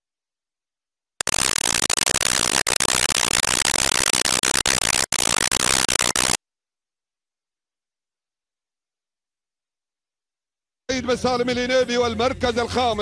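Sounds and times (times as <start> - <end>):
loud static hiss: 1.2 - 6.4.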